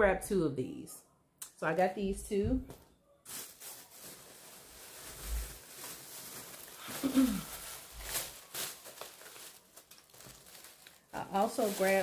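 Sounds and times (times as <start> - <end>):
faint rustling of packaging: 2.6 - 12.0.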